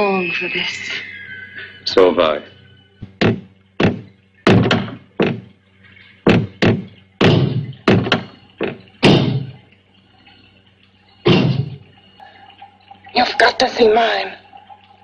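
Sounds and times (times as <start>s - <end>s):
heavy pounding on wooden door: 3.1s - 5.5s, 6.3s - 9.6s, 11.3s - 11.8s.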